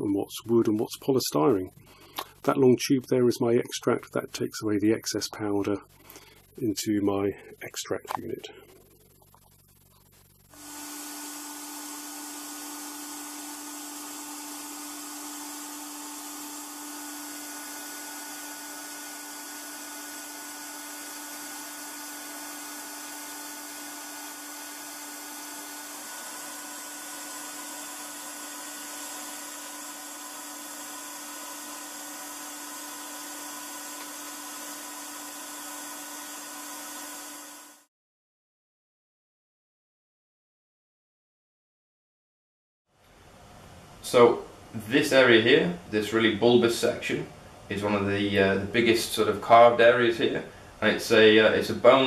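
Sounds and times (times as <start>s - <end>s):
vacuum and abrasive unit hissing: 7.3s - 37.9s.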